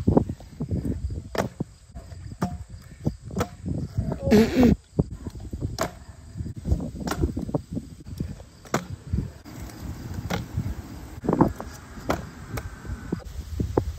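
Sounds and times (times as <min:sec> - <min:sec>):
scooter wheels rolling on asphalt: 0:06.6 - 0:13.9.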